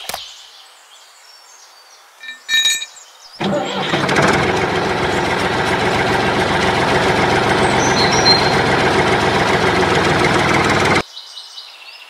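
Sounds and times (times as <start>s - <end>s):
bird chirps: 2.2s - 3.4s, 7.7s - 8.7s
tractor engine running: 3.4s - 11.0s.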